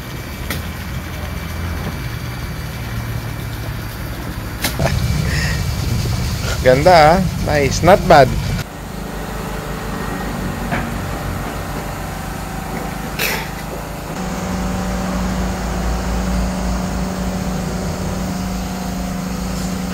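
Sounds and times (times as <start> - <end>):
steady machine hum: 0.0 - 19.9
low rumble: 1.0 - 8.6.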